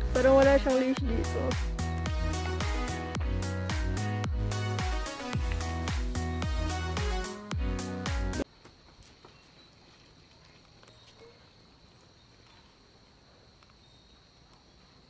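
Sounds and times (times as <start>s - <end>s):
insects droning: 7.8s - 15.0s.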